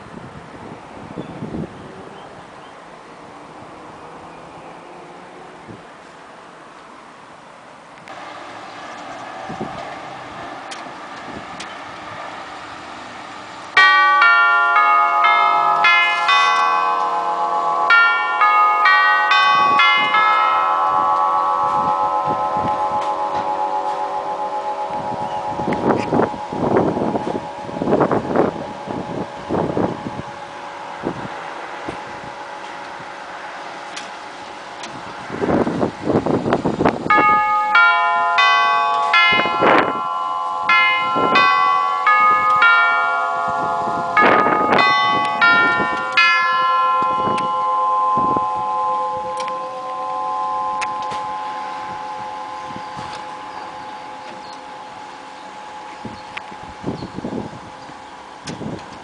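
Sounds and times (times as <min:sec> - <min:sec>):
tubular clock chimes melody: 0:13.8 - 0:33.2, 0:37.1 - 0:57.9.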